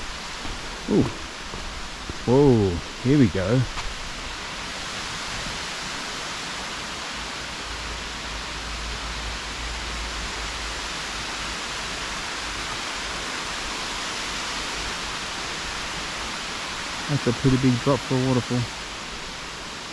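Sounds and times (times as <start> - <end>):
waterfall rushing: 0.0 - 19.9.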